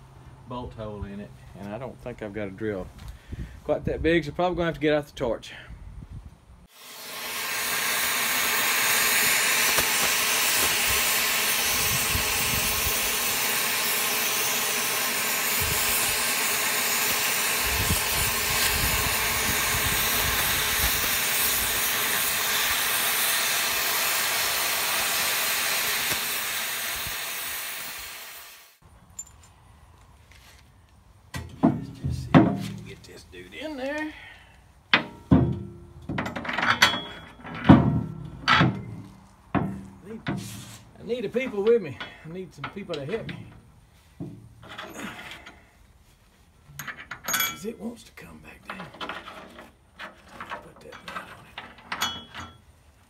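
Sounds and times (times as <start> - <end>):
cutting torch hissing: 6.7 - 28.8.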